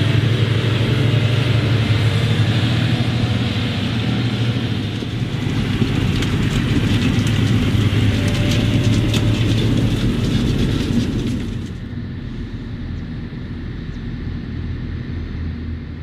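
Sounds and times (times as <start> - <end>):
wagon rattling: 0.0 - 11.9
tractor diesel engine under load: 0.0 - 16.0.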